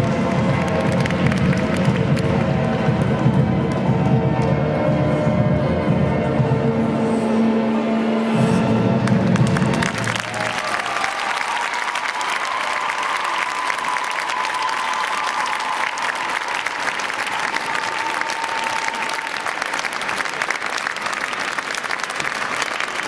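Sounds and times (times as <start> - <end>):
audience applauding: 0.0 - 2.7, 9.3 - 23.0.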